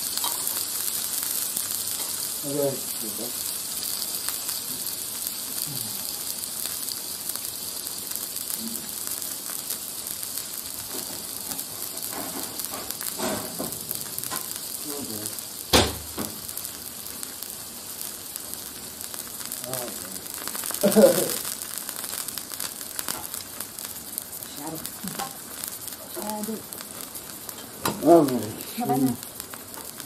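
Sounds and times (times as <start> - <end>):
meat sizzling on a grill: 0.0 - 30.0
sharp knock: 15.7 - 16.4.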